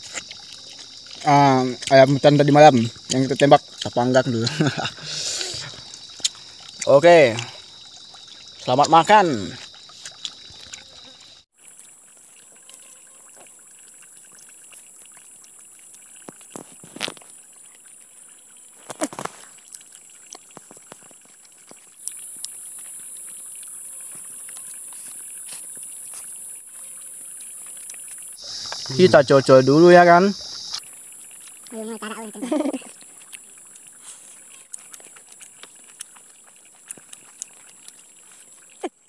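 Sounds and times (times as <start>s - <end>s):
forest insects droning: 0.0s - 39.0s
clicks and rustles of food handling: 18.8s - 22.4s.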